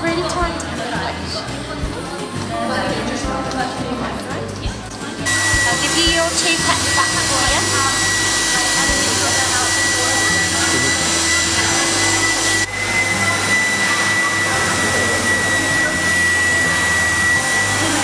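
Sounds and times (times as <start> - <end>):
blower rushing air with whine: 5.2 - 18.0.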